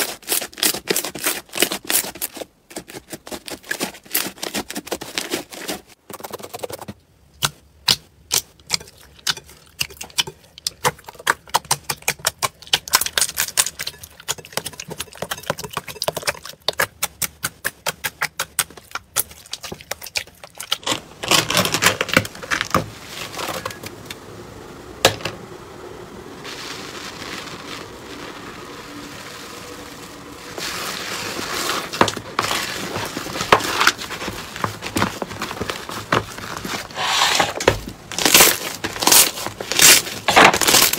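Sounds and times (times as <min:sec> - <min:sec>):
slime squishing: 0:07.4 - 0:23.7, 0:26.5 - 0:40.9.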